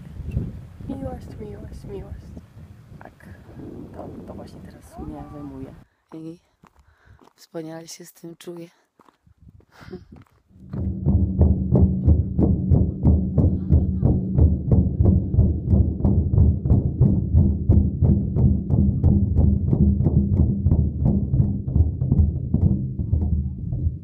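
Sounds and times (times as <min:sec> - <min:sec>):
frame drums beating: 0:10.6 - 0:24.0.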